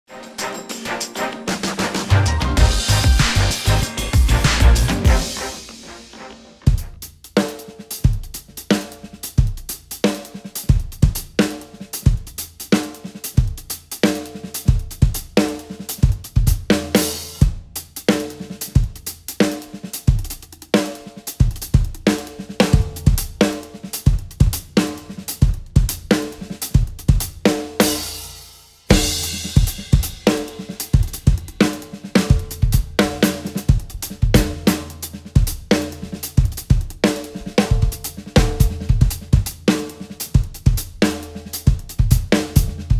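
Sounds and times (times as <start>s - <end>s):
cymbal crashes: 0.1s - 7.1s, 27.9s - 33.4s
drum kit solo: 0.1s - 42.9s.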